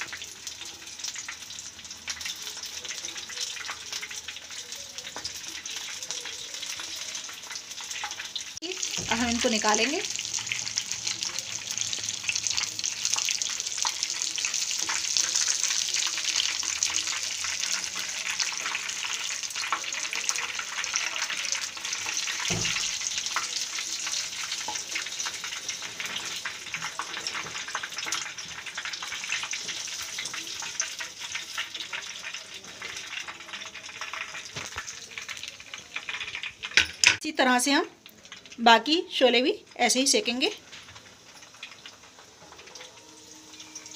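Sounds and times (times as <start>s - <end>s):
bread frying in sizzling oil: 0.0s - 43.9s.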